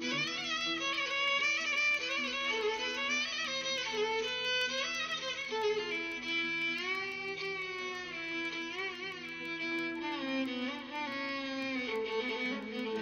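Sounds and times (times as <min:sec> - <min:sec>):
violin playing sliding notes: 0:00.0 - 0:13.0.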